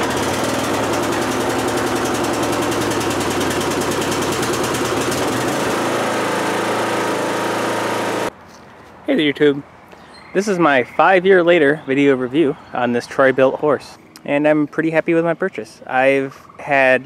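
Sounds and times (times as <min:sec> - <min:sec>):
riding mower engine running: 0:00.0 - 0:08.4.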